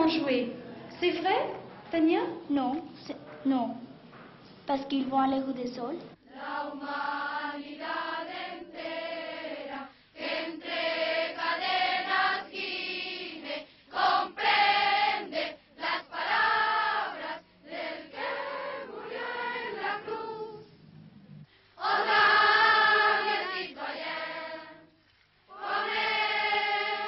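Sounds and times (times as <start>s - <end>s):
children's choir singing: 6.2s - 20.7s, 21.8s - 24.9s, 25.5s - 27.0s.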